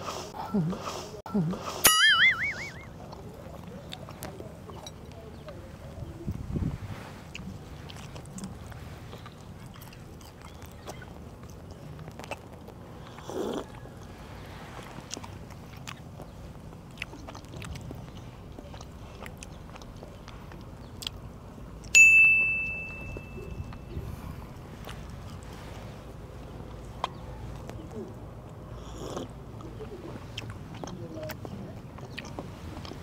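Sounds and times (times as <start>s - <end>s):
chewing: 2.7s - 22.0s, 22.9s - 33.0s
crockery clinking: 22.0s - 23.9s.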